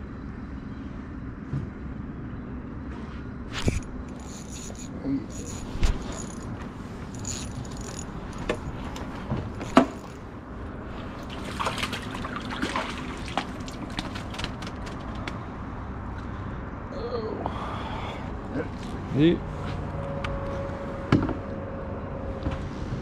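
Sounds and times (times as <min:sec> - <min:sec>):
water sloshing against boat: 0:03.6 - 0:15.4
quick splashy clicks: 0:11.4 - 0:15.4.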